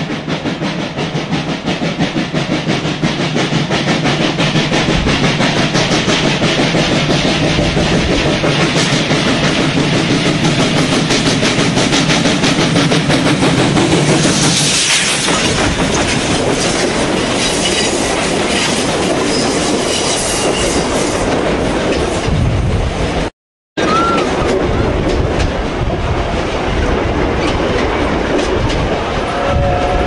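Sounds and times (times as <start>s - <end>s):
steam locomotive exhaust beat: 0.0s - 30.0s
wheels clicking over rail joints: 0.1s - 20.8s.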